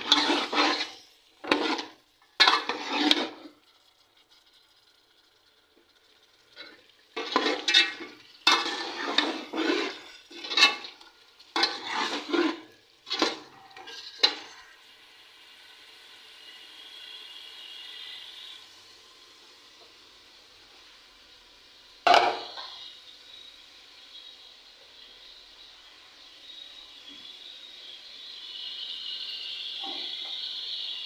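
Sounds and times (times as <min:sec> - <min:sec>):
metal ladle scraping a metal pot: 0:00.0 - 0:03.6, 0:06.6 - 0:14.5
faint sizzle: 0:00.0 - 0:31.0.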